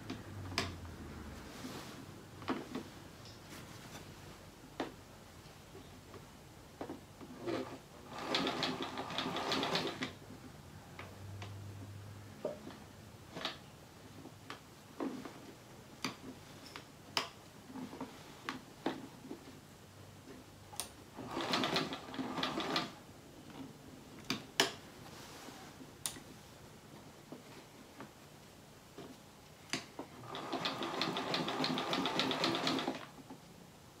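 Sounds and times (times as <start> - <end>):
sewing machine stitching: 7.3 - 10.2, 21.2 - 23.0, 30.2 - 33.1.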